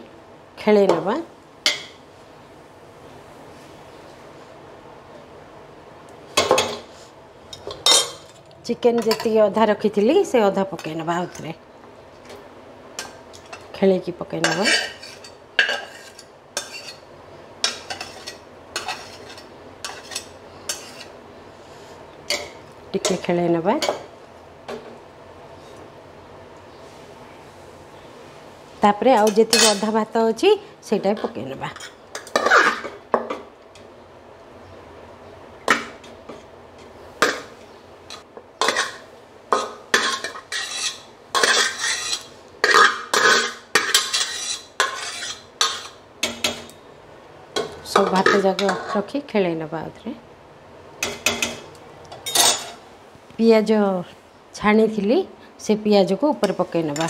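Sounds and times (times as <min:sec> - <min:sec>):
spatula scraping a pan: 0:14.5 - 0:22.0, 0:31.8 - 0:32.9, 0:38.6 - 0:39.0, 0:39.6 - 0:46.0.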